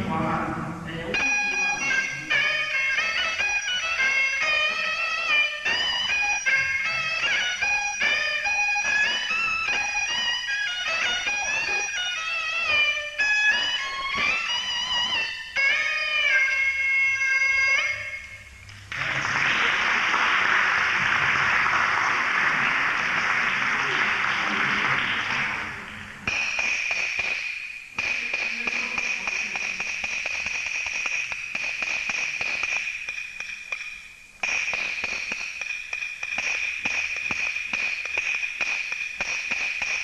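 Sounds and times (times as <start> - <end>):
applause: 18.9 - 25.8
small drum rapid stick strokes: 25.9 - 40.0.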